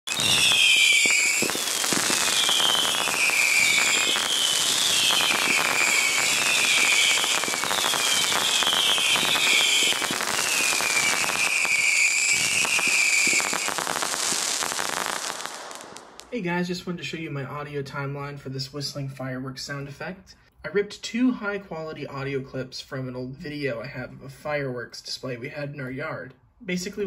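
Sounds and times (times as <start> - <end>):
whistling fireworks: 0.0 - 16.4
fireworks crackling: 0.0 - 17.8.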